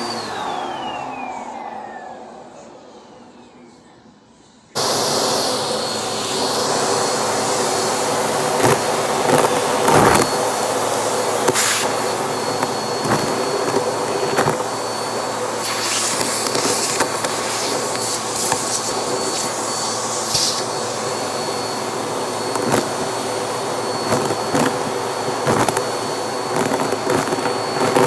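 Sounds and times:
vacuum cleaner running: 0.0 - 28.0
debris rattling up vacuum hose: 7.1 - 20.8, 22.4 - 28.0.

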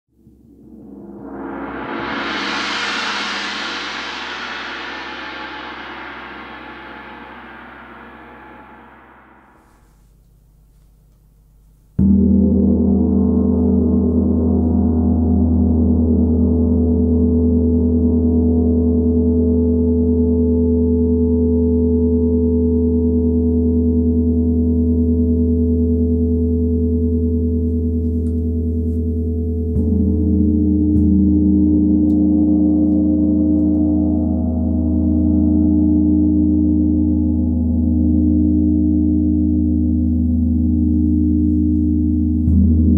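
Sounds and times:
large gong ringing: 0.8 - 9.6, 29.3 - 42.9.

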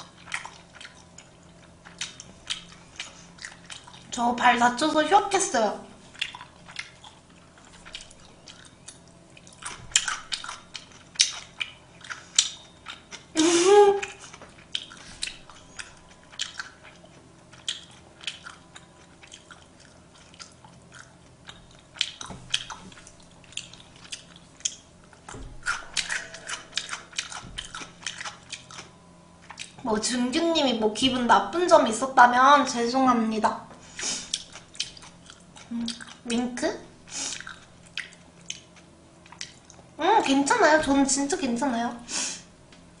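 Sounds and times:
person chewing food: 0.0 - 4.1, 6.0 - 13.4, 14.0 - 29.8, 34.0 - 36.3, 37.1 - 40.0
person humming: 13.4 - 14.1, 35.7 - 36.0.

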